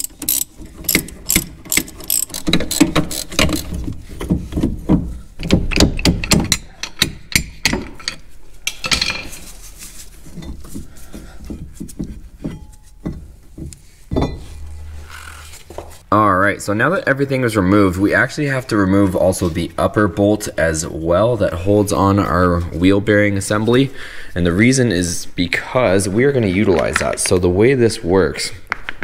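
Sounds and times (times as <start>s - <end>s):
ratchet wrench clicking: 0.0s - 3.8s
metal knocks: 11.6s - 16.0s.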